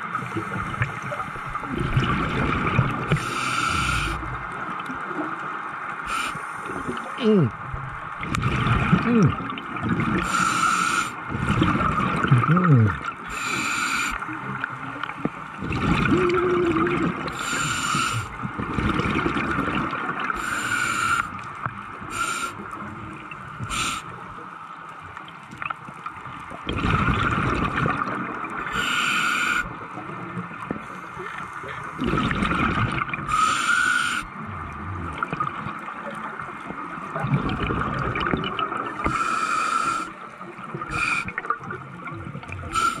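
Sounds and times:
underwater exhaled bubbles bursting: 0.0s - 4.7s, 6.9s - 10.5s, 11.2s - 13.5s, 14.2s - 20.5s, 26.5s - 28.7s, 31.8s - 33.4s, 34.3s - 39.2s
regulator hiss and gurgle: 0.0s - 43.0s.

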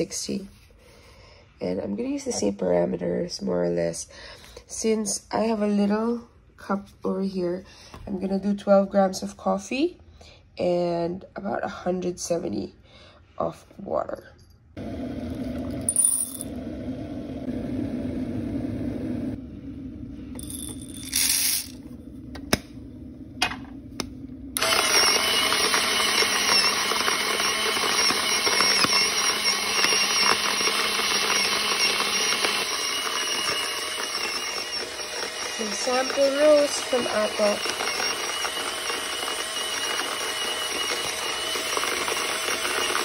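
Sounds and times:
coffee grinder whirring: 14.8s - 19.4s, 20.4s - 22.6s, 23.4s - 43.0s.

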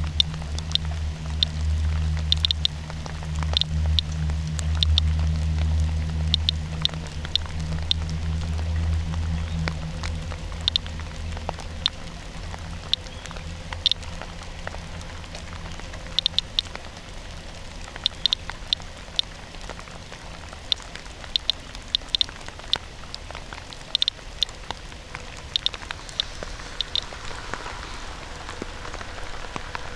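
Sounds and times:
geiger counter chirping: 0.0s - 1.6s, 2.2s - 2.8s, 3.4s - 4.1s, 4.7s - 5.1s, 6.3s - 8.0s, 10.6s - 10.9s, 16.2s - 16.7s, 18.0s - 19.3s, 20.7s - 22.8s, 23.8s - 24.5s, 25.5s - 27.1s
steady rain: 0.0s - 29.9s.

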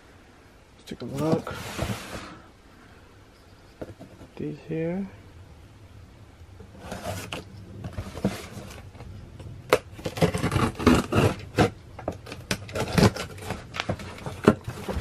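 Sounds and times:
cardboard scrapes and rustles: 1.1s - 2.4s, 6.7s - 9.1s, 9.7s - 15.0s
scraping along taped seam: 10.0s - 11.7s.

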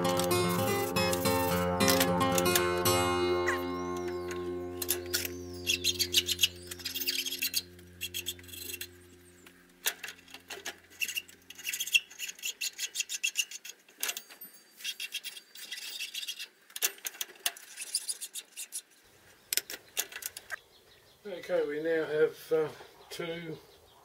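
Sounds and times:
background music low chord: 0.0s - 11.5s.

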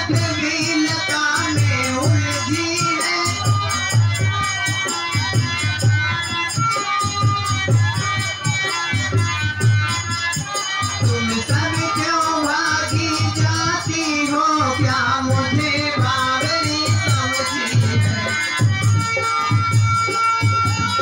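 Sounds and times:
high voice singing folk song: 0.0s - 3.6s, 11.0s - 18.5s
shaker-like percussion rattling: 0.0s - 21.0s
steady drum beat: 0.0s - 21.0s.

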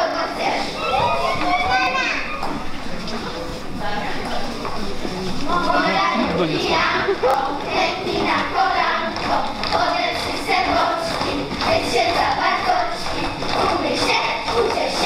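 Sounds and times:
girls singing in unison: 0.0s - 1.3s, 5.5s - 15.0s.

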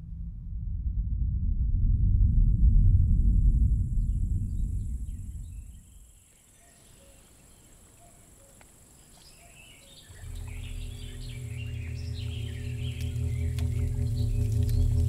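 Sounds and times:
sustained film score drone: 0.0s - 6.0s, 10.0s - 15.0s
low rumbling drone: 0.0s - 6.1s, 10.0s - 15.0s
faint birdsong: 4.0s - 15.0s.

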